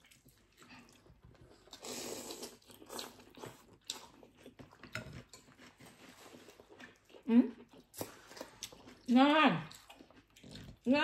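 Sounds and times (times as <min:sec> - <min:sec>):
chewing: 0:00.0 - 0:11.0
slurping noodles: 0:01.6 - 0:03.6.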